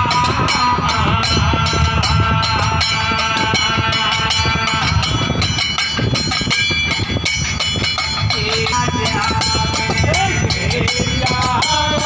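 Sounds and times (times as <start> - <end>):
metal plate struck rhythmically: 0.0 - 12.0.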